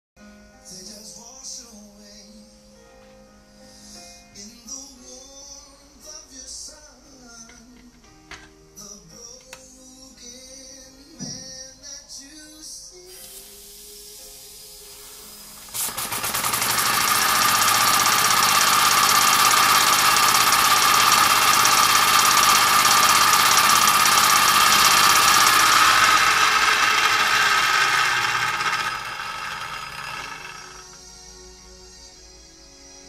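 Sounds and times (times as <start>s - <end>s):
toy steam engine chuffing: 15.2s - 31.0s.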